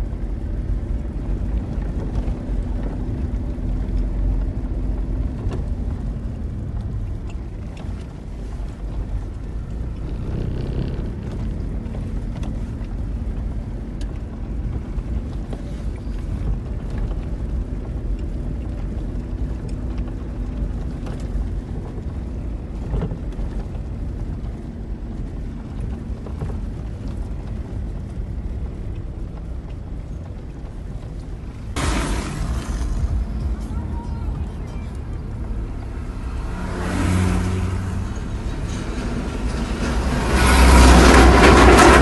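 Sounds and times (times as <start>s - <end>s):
tyres and engine rumbling: 0.0s - 42.0s
knocks and rattles: 9.8s - 12.7s.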